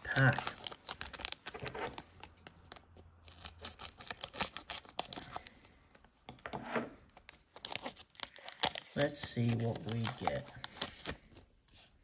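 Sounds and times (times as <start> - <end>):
foil wrapper crinkling: 7.6 - 11.3.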